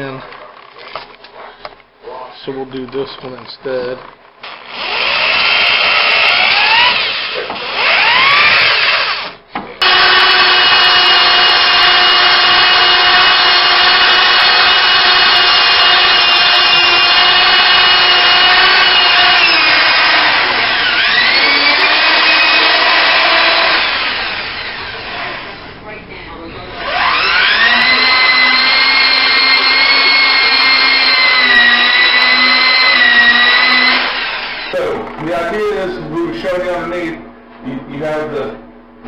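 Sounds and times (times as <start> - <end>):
drill bit grinding on metal: 4.4 - 25.7, 26.8 - 34.8
power drill whining: 4.4 - 25.7, 26.8 - 34.8.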